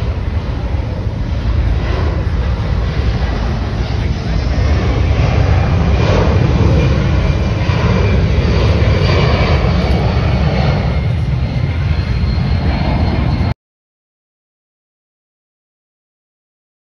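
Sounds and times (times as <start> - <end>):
airplane engine noise: 0.0 - 13.6
faint high whine: 0.0 - 13.6.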